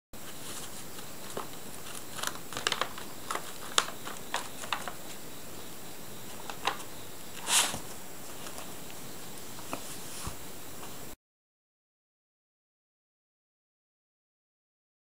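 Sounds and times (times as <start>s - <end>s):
paper bag crinkling: 0.2s - 5.2s, 6.3s - 8.9s
paws tapping and scratching: 0.3s - 5.2s.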